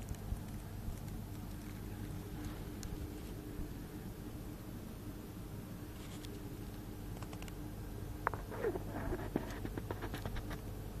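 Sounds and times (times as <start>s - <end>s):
gas boiler humming: 0.0s - 11.0s
handling scratches and clicks: 8.3s - 10.7s.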